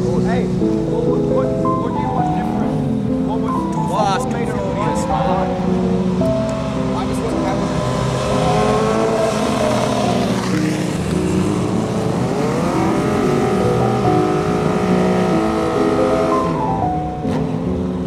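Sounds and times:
motorcycle engines revving: 0.0s - 18.0s.

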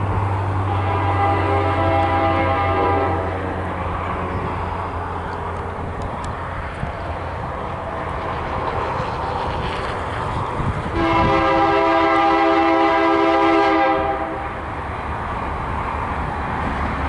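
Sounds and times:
diesel locomotive engine running: 0.0s - 17.0s
train air horn blast: 0.6s - 3.5s, 10.9s - 14.6s.

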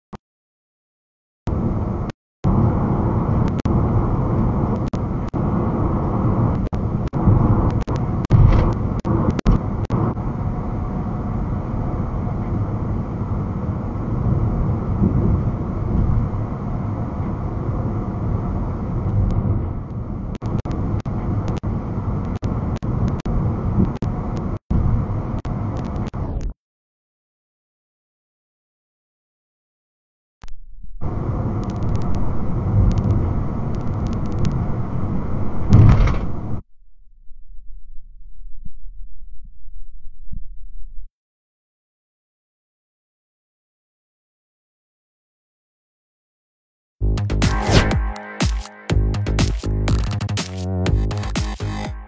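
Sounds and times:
car road and engine noise: 1.5s - 26.4s, 31.0s - 36.6s.

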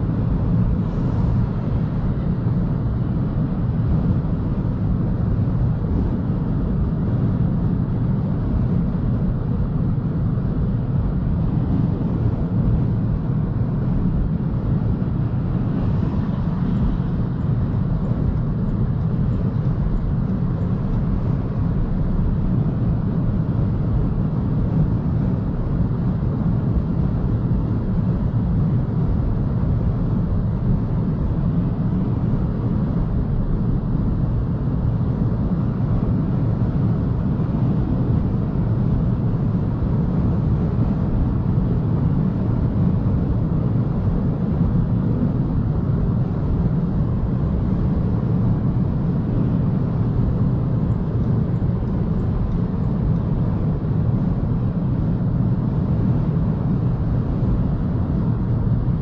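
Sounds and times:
tyre and wind road noise: 0.0s - 59.0s.

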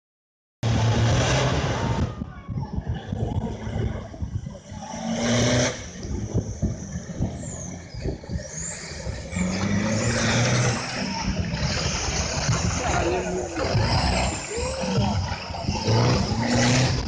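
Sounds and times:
truck engines revving: 0.6s - 17.0s
water spraying from tyres: 8.3s - 16.8s.

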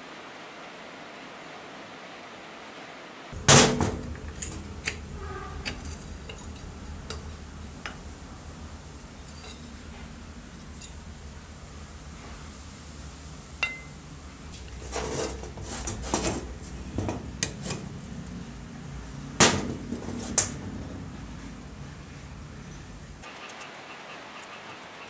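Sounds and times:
metal parts clanking and scraping: 3.4s - 7.4s, 9.1s - 11.1s, 14.6s - 18.0s.

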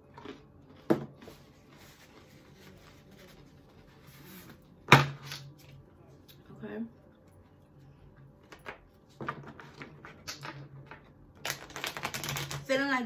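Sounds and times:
cards being shuffled: 8.6s - 12.6s.

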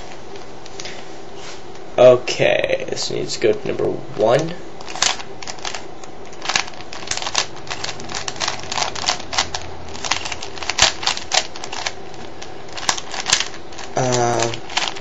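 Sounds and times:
puzzle cube clicking: 4.8s - 12.0s, 12.8s - 15.0s.

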